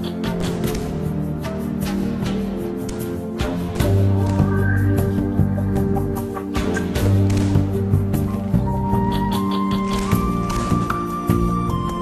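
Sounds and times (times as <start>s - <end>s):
music with sustained chords: 0.0s - 12.0s
sharp cracks: 6.6s - 8.1s, 9.6s - 11.4s.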